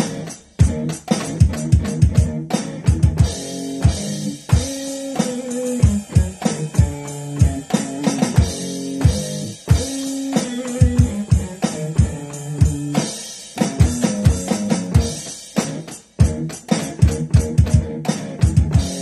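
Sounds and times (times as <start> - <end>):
blues guitar: 0.0 - 19.0
electronic drum beat: 0.0 - 19.0.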